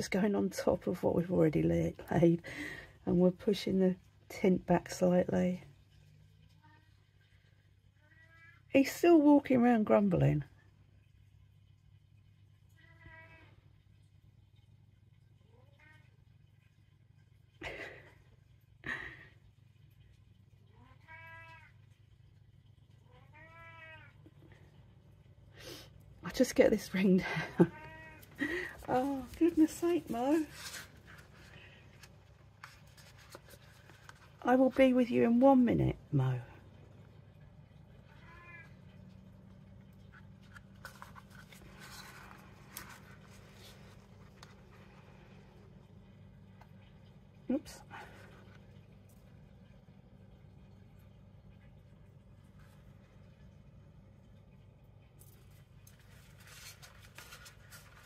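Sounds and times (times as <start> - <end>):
low steady hum: 0.0 - 58.0
cat meowing and grumbling: 23.2 - 24.2, 38.1 - 38.7.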